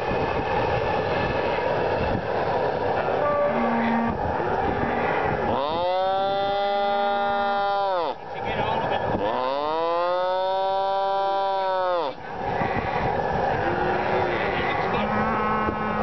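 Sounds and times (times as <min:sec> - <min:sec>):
calf bawling: 0:09.2 - 0:13.0.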